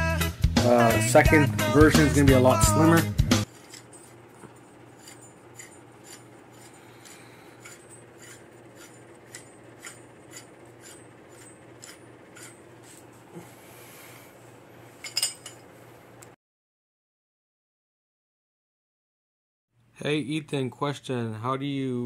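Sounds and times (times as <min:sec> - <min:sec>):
metal parts clicking: 0:03.5 - 0:04.2, 0:05.0 - 0:13.0
faint steady hum: 0:03.5 - 0:16.4.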